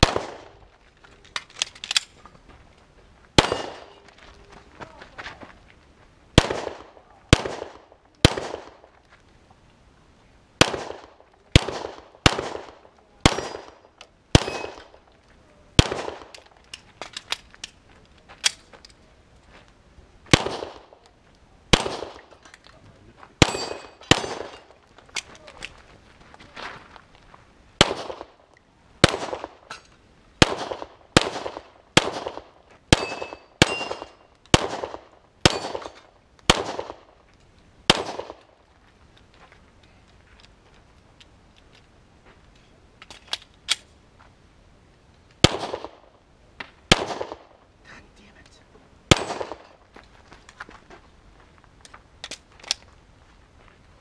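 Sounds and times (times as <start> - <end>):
pistol shots: 0.0 - 0.6, 3.4 - 4.0, 6.4 - 8.8, 10.6 - 15.0, 15.8 - 16.5, 20.3 - 21.0, 21.7 - 22.3, 23.4 - 24.8, 27.8 - 28.4, 29.0 - 29.7, 30.4 - 37.1, 37.9 - 38.5, 45.4 - 46.1, 46.9 - 47.6, 49.1 - 49.8
struck steel ringing: 23.4 - 24.6.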